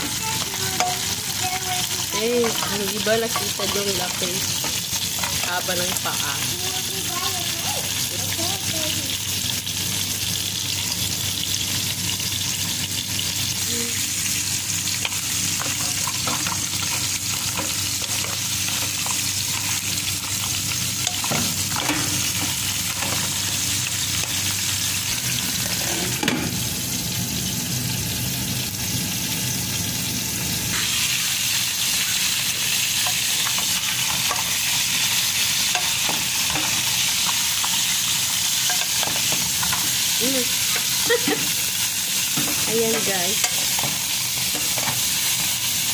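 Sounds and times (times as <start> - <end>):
food sizzling in a pot: 0.0 - 45.9
spatula knocking and scraping shells: 15.0 - 23.5.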